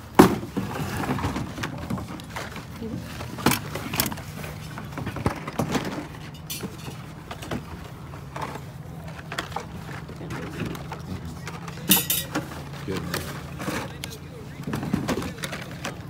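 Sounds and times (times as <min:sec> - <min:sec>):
toy cars clicking and clinking: 0:10.3 - 0:16.0.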